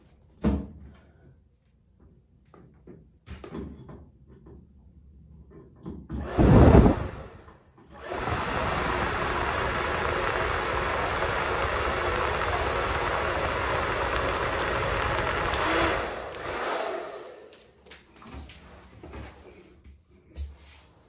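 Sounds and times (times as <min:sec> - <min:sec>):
blow dryer running: 0:06.1 - 0:17.9.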